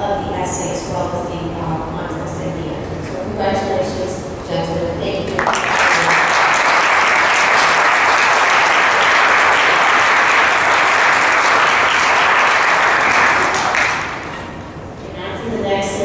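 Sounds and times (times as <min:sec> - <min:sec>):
people applauding: 0:05.3 - 0:14.6.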